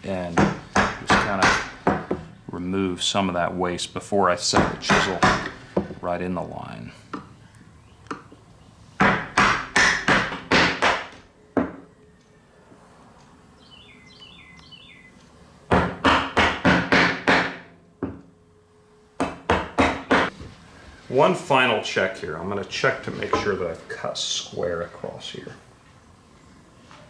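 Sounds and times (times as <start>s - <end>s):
wooden mallet striking chisel: 9.0s - 11.8s, 15.7s - 18.2s.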